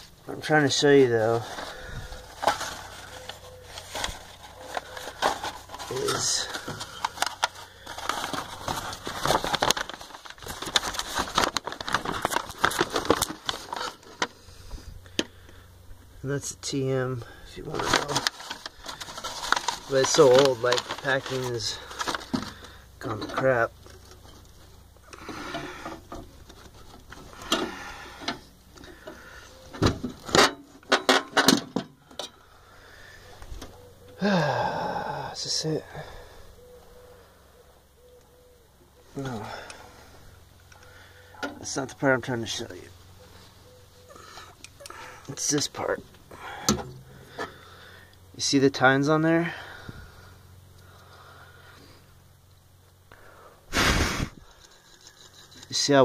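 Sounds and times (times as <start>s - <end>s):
paper rustling and crinkling: 1.3s - 14.4s, 17.7s - 24.6s
sharp clicks and scrapes: 54.4s - 55.9s.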